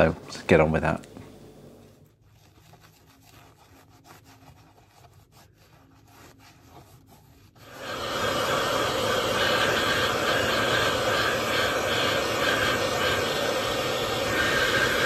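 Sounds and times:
cloth rubbing leather: 1.9s - 7.8s
loud steady rushing noise: 7.7s - 15.0s.

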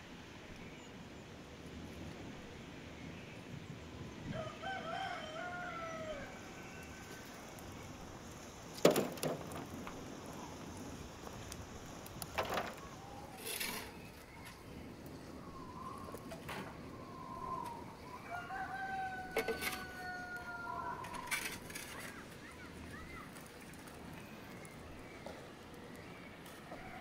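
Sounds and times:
rooster crowing: 4.3s - 7.6s, 17.0s - 21.7s
shovel scraping: 13.4s - 14.0s.

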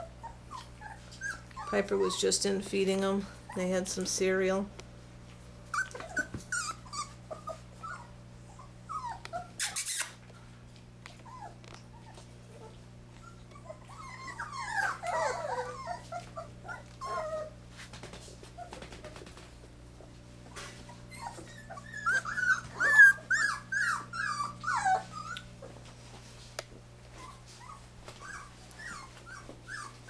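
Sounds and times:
puppies whining and whimpering: 0.0s - 4.0s, 5.6s - 10.2s, 11.1s - 17.7s, 20.4s - 26.2s, 27.0s - 30.0s.

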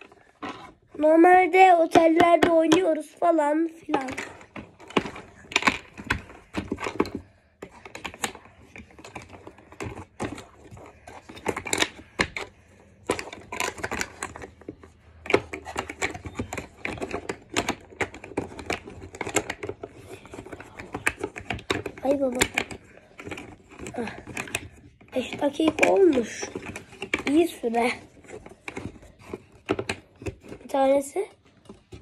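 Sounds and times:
plastic game pieces clicking: 0.0s - 32.0s.

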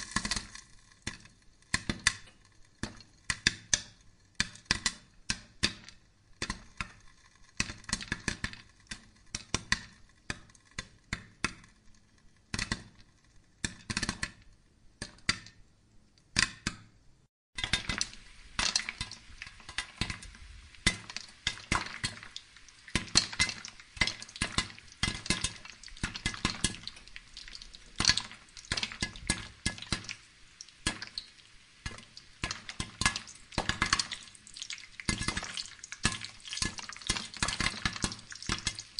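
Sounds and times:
charcoal crackling: 0.0s - 3.3s, 17.6s - 38.9s
steady hiss: 17.6s - 36.1s.

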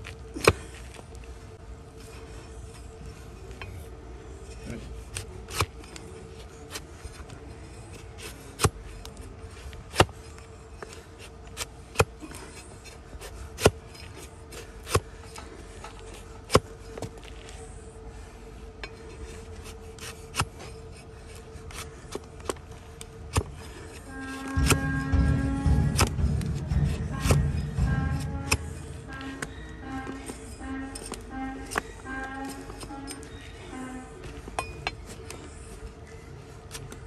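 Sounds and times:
knife cutting hoof: 23.2s - 33.4s
faint scraping: 23.5s - 34.2s.

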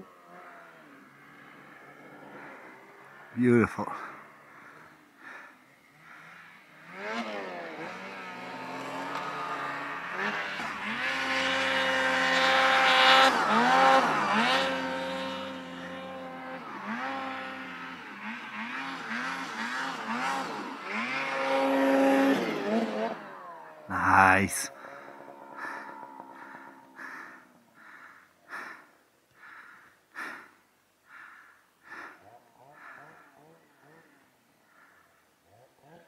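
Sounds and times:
snowmobile engine revving: 0.0s - 3.4s, 4.0s - 28.8s.

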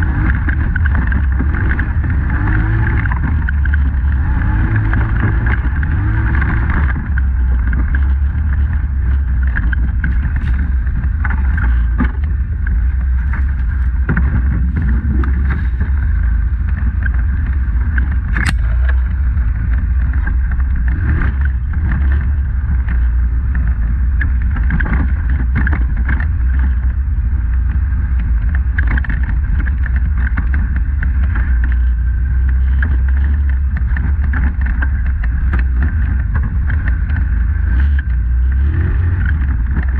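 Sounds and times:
atv engine rumbling: 0.0s - 39.9s
knocks and rattles: 0.0s - 39.9s
sharp click: 18.3s - 19.1s.

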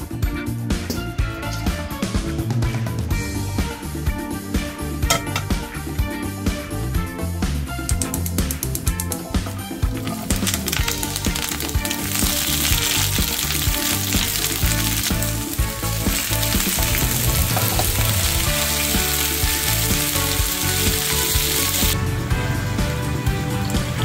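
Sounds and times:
background music: 0.0s - 24.0s
food sizzling in hot oil: 9.9s - 22.0s.

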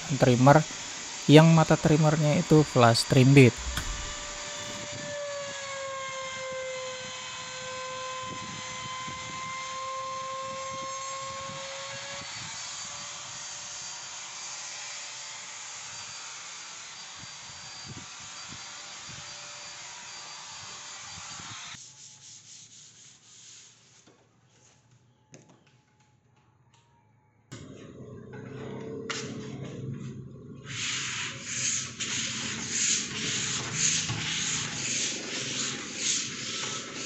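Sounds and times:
router motor whining while cutting: 2.4s - 21.8s.

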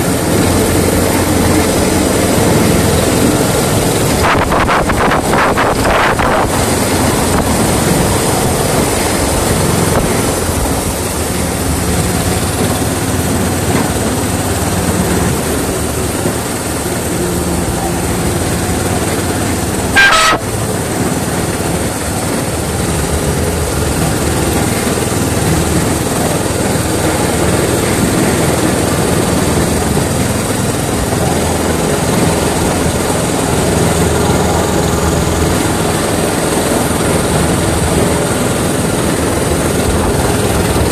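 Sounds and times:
miniature train rumble: 0.0s - 40.9s
loud high-pitched sound: 19.8s - 20.7s.

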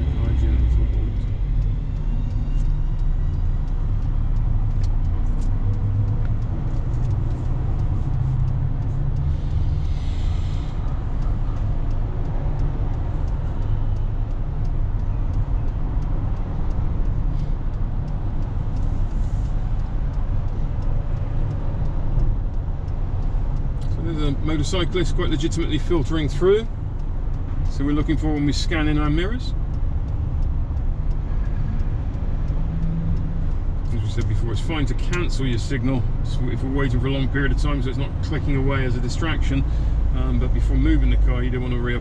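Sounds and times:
car engine rumble from inside: 0.0s - 42.0s
surrounding traffic: 0.0s - 42.0s.

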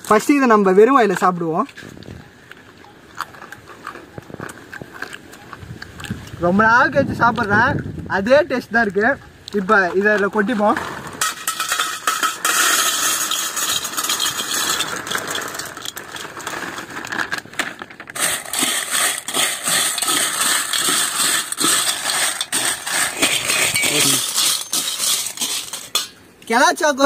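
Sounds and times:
cereal poured into steel bowl: 11.5s - 17.4s, 18.1s - 25.8s
spoon scraping steel bowl: 18.2s - 26.2s.

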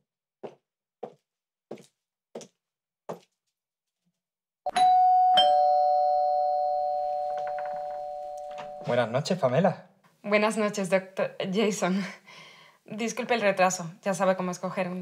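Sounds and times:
high-heeled footsteps on tiles: 0.4s - 3.5s
two-tone doorbell chime: 4.7s - 9.0s.

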